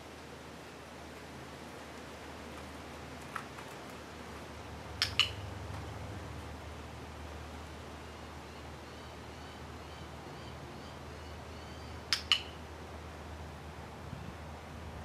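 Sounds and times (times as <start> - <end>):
training clicker double click: 5.0 - 5.4, 12.1 - 12.6.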